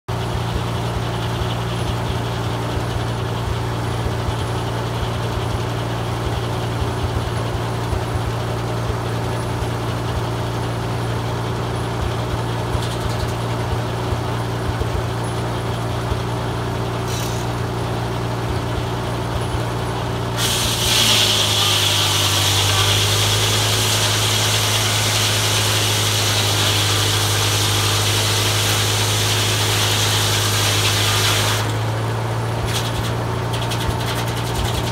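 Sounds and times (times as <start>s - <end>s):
tractor engine running: 0.1s - 34.9s
circular saw cutting log hiss: 20.4s - 31.8s.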